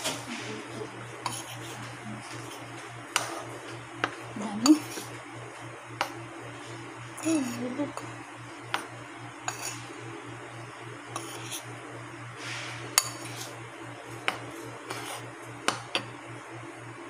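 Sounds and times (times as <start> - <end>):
steady low hum: 0.0 - 17.0
spoon scraping flour in bowl: 0.1 - 5.2, 6.0 - 8.1, 8.7 - 10.0, 11.1 - 11.8, 12.4 - 16.1.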